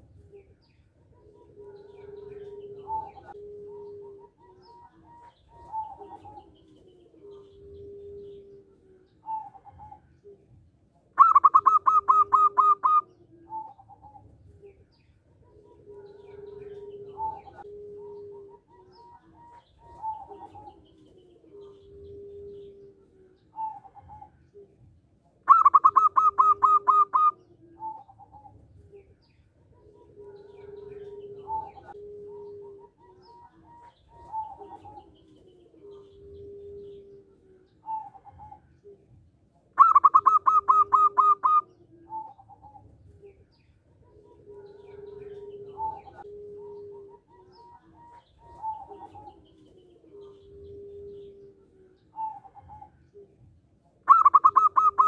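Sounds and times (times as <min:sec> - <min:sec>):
dove cooing: 0:00.0 - 0:55.0
dove rapid staccato notes: 0:25.5 - 0:27.3, 0:39.8 - 0:41.6, 0:54.1 - 0:55.0.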